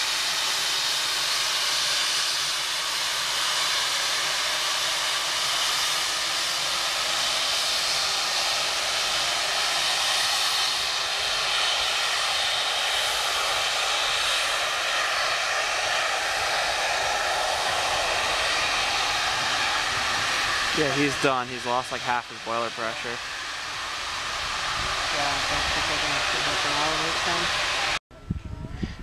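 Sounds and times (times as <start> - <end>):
steam hissing from safety valve: 0.0 - 28.0.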